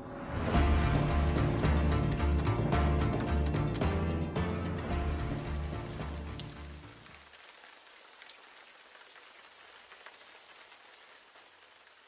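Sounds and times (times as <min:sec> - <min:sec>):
music: 0:00.0 - 0:07.0.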